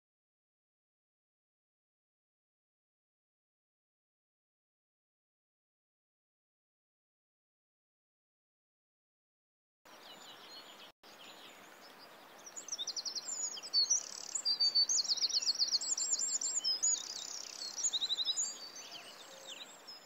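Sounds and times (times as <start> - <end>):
songbirds singing: 9.9 - 20.0
steady outdoor hiss: 9.9 - 20.0.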